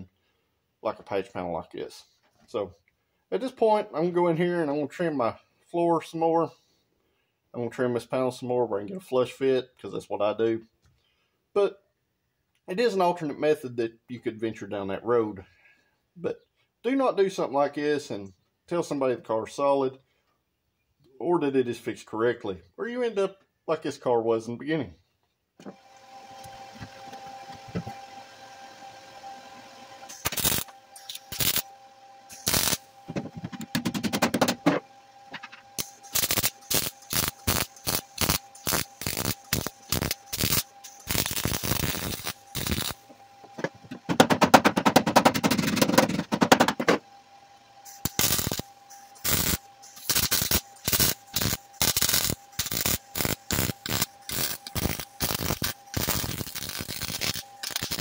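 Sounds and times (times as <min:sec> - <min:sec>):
steady hum: 0:25.6 - 0:58.0
welder arc buzzing: 0:30.0 - 0:44.2, 0:47.8 - 0:58.0.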